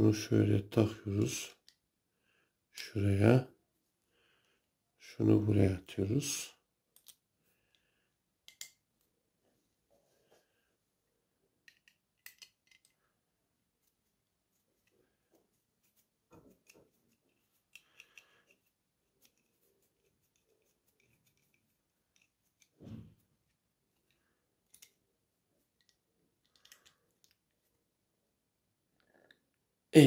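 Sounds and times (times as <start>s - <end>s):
allen key turning a screw: 11.6s - 13.0s.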